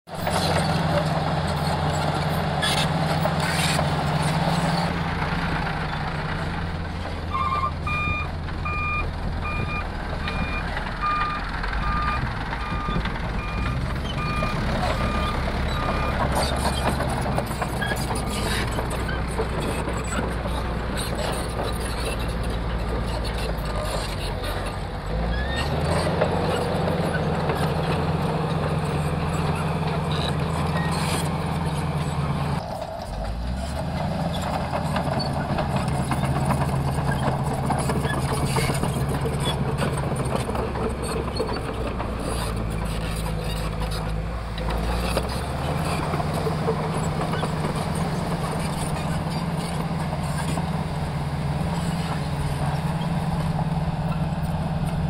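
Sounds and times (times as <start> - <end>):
diesel truck engine running: 0.1 - 55.0.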